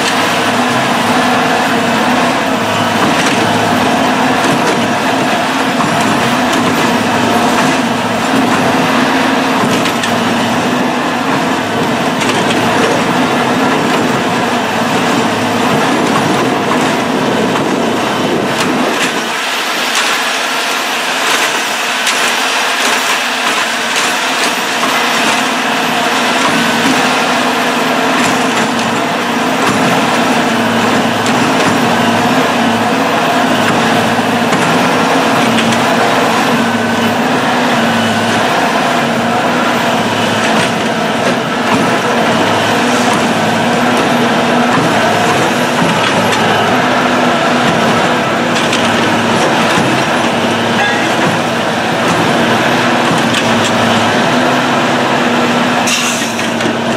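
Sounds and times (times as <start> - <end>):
diesel engine rumble: 0.0 - 56.9
hydraulics whining: 0.0 - 56.9.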